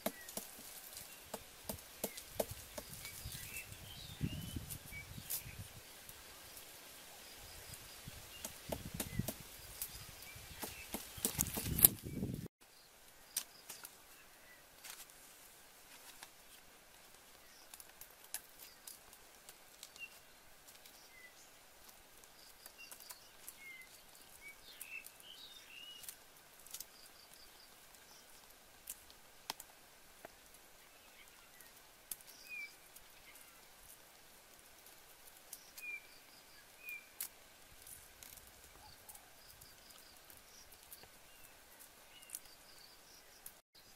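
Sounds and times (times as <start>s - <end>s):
hands rustling leaves: 0.0s - 12.5s.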